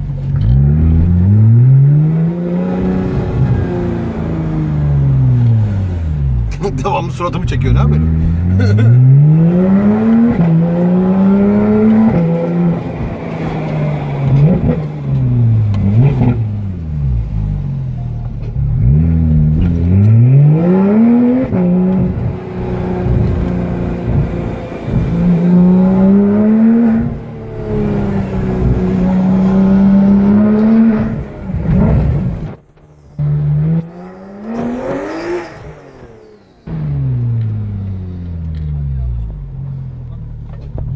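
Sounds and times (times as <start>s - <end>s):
car engine revving: 0.0s - 40.9s.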